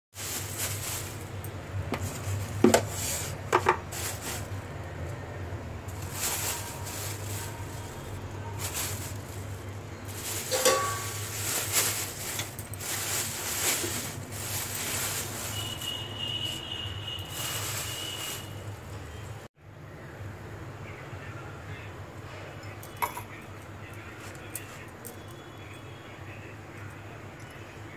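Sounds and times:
plastic bag crinkling: 0.2s - 5.0s, 5.9s - 19.3s, 24.0s - 25.3s
plastic containers knocking: 1.9s - 3.9s.

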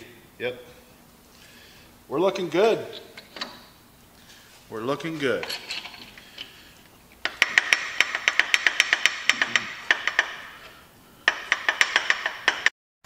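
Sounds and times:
ratchet wrench clicking: 7.2s - 10.3s.

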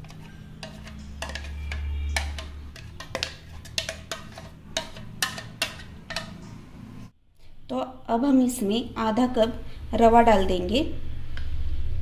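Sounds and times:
spatula scraping metal jar: 0.0s - 6.5s.

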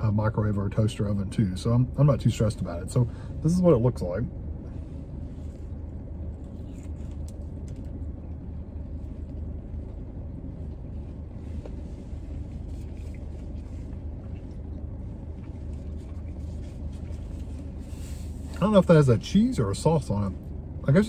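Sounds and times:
car engine idling hum: 0.0s - 21.0s
sandwich wrapper rustling: 5.4s - 8.1s.

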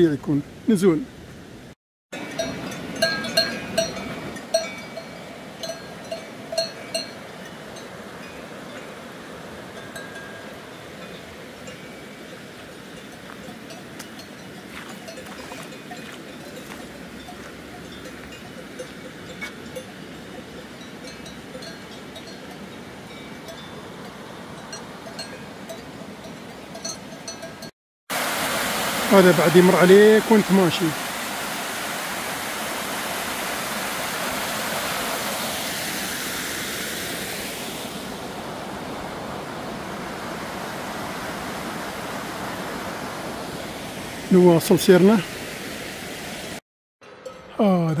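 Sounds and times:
cowbells clanking: 2.2s - 8.9s, 9.8s - 27.7s, 47.0s - 48.0s
river rushing: 2.2s - 46.6s.

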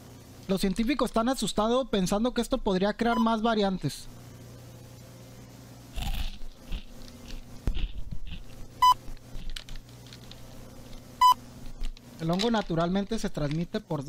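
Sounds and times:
low steady hum: 0.0s - 14.0s
potato chips being chewed: 6.0s - 11.0s.

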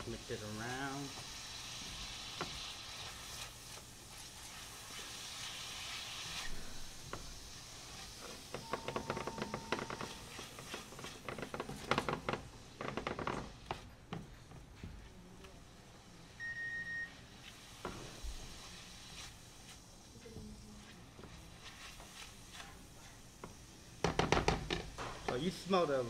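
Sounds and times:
aromatics sizzling in fat: 0.0s - 26.0s
utensil scraping a pan: 1.2s - 12.5s, 20.8s - 23.6s.

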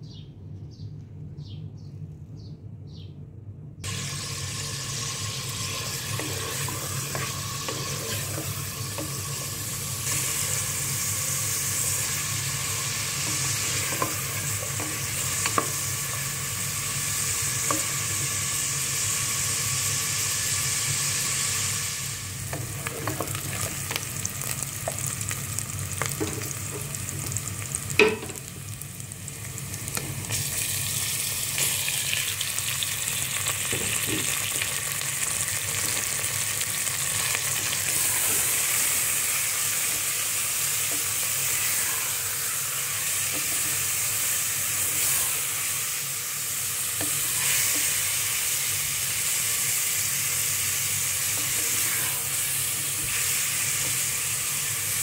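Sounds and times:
bird chirping: 0.0s - 3.2s
onions sizzling in hot oil: 3.8s - 55.0s.

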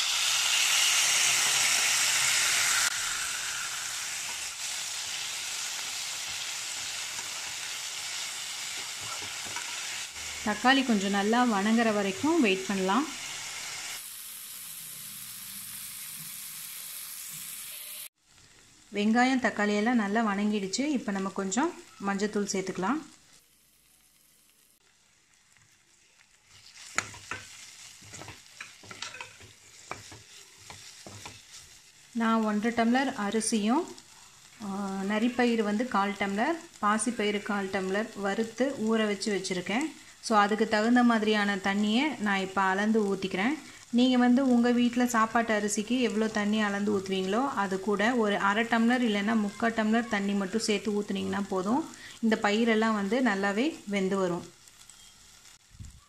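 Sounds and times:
vegetables sizzling in hot oil: 0.0s - 56.0s
spatula stirring: 8.6s - 10.3s, 26.4s - 32.0s
spoon scraping metal pot: 26.7s - 31.5s.

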